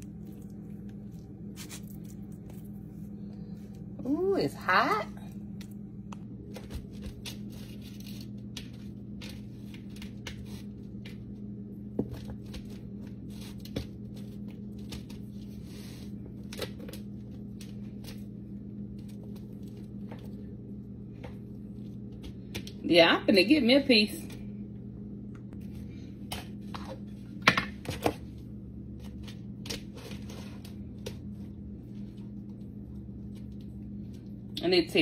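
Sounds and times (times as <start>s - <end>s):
low hum: 0.0s - 35.0s
knife cutting crunchy crust: 1.5s - 2.7s.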